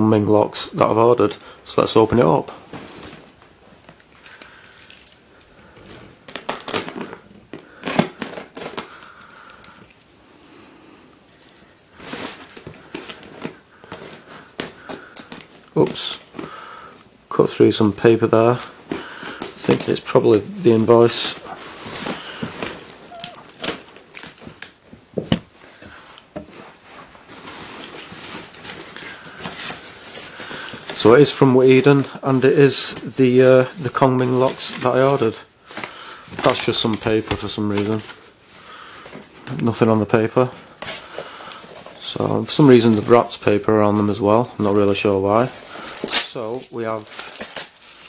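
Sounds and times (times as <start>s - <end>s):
plastic crinkling: 2.0s - 10.4s, 11.2s - 16.9s, 17.5s - 48.0s
rustling: 2.2s - 17.0s, 18.0s - 48.0s
cardboard tearing: 5.8s - 9.2s, 18.5s - 24.8s, 45.3s - 48.0s.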